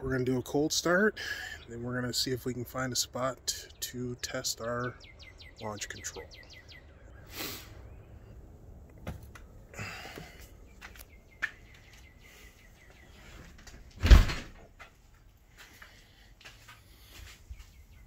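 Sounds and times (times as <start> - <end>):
small birds chirping: 0.0 - 14.0, 14.7 - 18.0
door shutting thump: 14.0 - 14.6.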